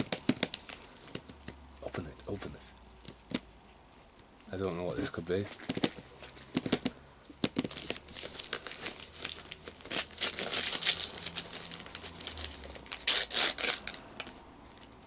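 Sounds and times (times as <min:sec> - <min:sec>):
wrapping paper crinkling: 0:07.5 - 0:15.0
paper ripping: 0:07.6 - 0:14.4.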